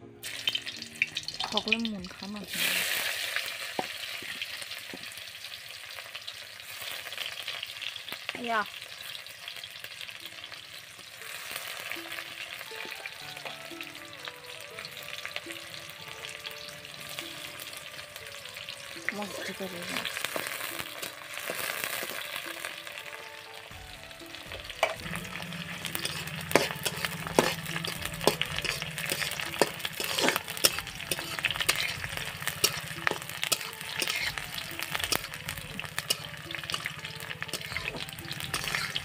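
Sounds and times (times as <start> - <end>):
onions sizzling in hot oil: 0.2 - 39.0
spatula scraping a pan: 24.8 - 39.0.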